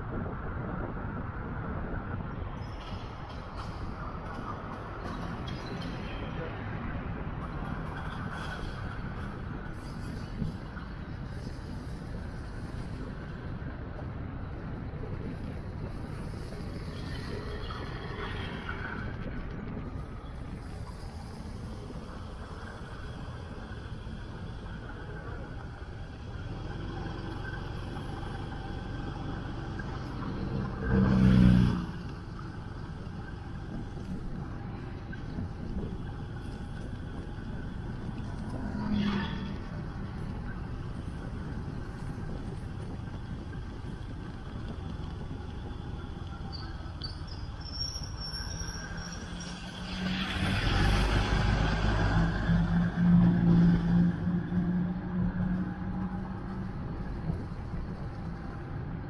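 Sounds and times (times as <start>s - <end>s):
traffic rumble: 0.0s - 59.0s
deeper engine hum: 18.5s - 59.0s
vehicle passing close by: 49.3s - 56.7s.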